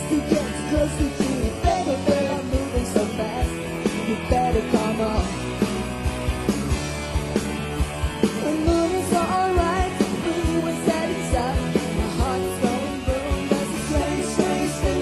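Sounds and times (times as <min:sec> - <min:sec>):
pop-rock band playing: 0:00.0 - 0:15.0
steady drum beat: 0:00.0 - 0:15.0
woman singing into a microphone: 0:08.4 - 0:15.0.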